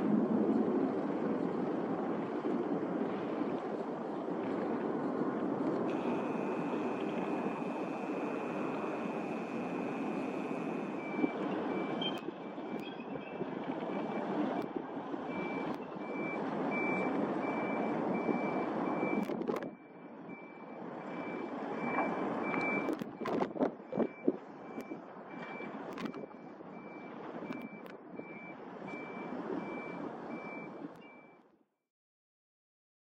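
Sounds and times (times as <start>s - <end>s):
reversing alarm beeping: 5.9s - 31.4s.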